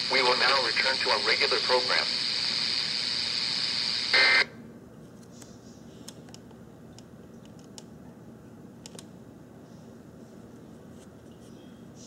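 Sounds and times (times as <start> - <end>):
radio static hiss: 0.0 - 4.6
data tones burst: 0.1 - 4.5.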